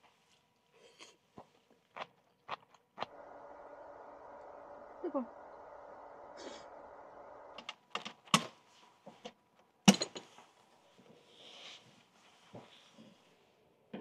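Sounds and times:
steady low hum: 3.0s - 9.6s.

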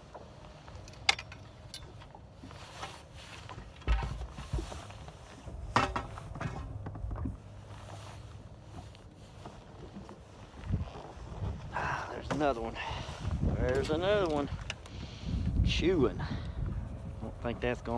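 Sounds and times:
fishing gear clicks and knocks: 0.0s - 11.5s, 13.5s - 15.6s.

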